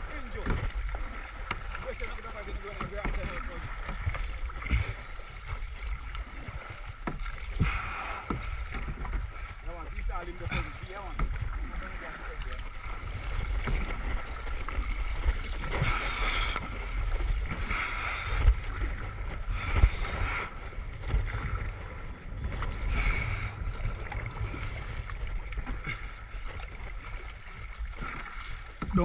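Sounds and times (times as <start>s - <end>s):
paddle blades splashing water: 0.0s - 29.0s
water washing along hull: 0.0s - 29.0s
steady low rumble: 11.4s - 27.8s.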